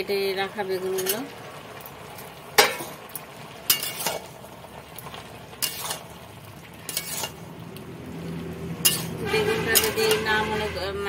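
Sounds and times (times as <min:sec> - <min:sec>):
metal spatula scraping a wok: 0:00.8 - 0:01.3, 0:03.6 - 0:04.4, 0:05.6 - 0:06.2, 0:06.8 - 0:07.5, 0:08.8 - 0:10.9.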